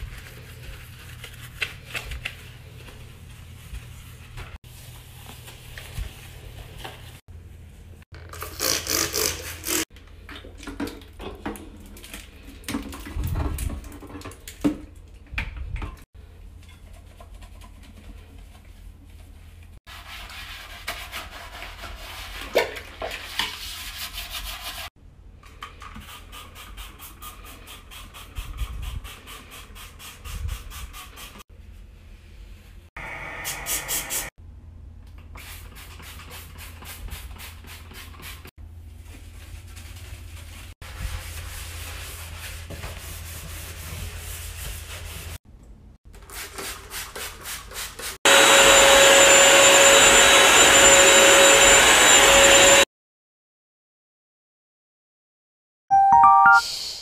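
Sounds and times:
cloth wiping a sink: 0.0 - 8.0, 35.5 - 45.4.

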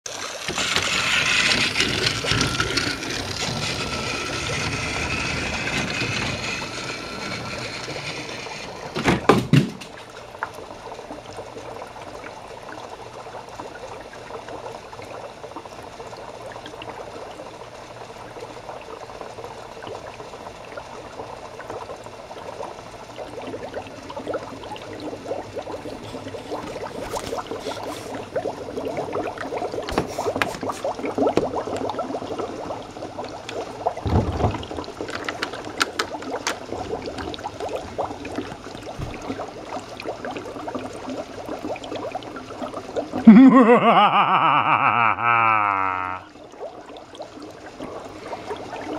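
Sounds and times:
dry ice bubbling in water: 0.1 - 9.0, 10.0 - 48.9
toy train running on track: 0.1 - 9.0.

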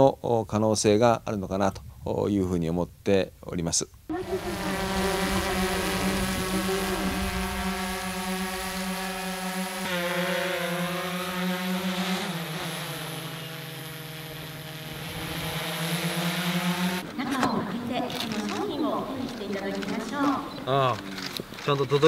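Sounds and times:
drone propellers humming: 4.1 - 21.6.

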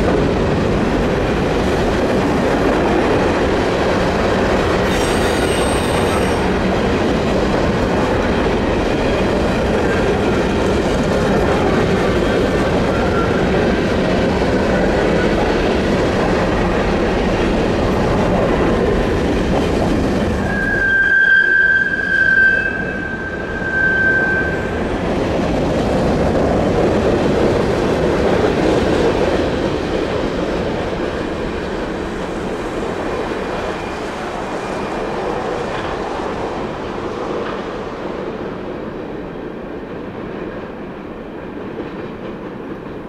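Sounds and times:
freight train rumble and clatter: 0.0 - 43.0
high-pitched wheel squeal: 4.9 - 6.5, 20.4 - 24.8.

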